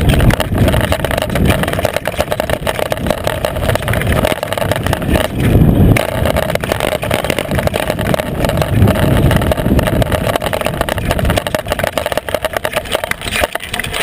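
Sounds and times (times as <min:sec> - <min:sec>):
bike tyre clattering on gravel: 0:00.0 - 0:14.0
wind rushing: 0:02.9 - 0:11.6.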